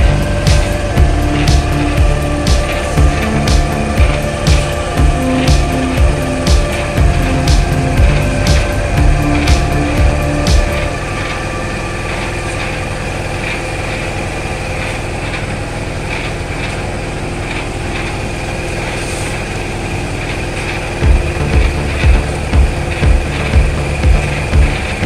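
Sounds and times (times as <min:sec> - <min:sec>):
loud low thuds: 0:00.0 - 0:11.0, 0:21.0 - 0:25.0
concrete mixer engine running: 0:00.0 - 0:25.0.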